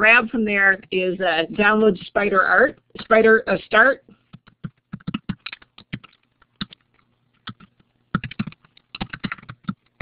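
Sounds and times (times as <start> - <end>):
faint steady low hum: 0.0 - 10.0
typing on computer keyboard: 4.3 - 10.0.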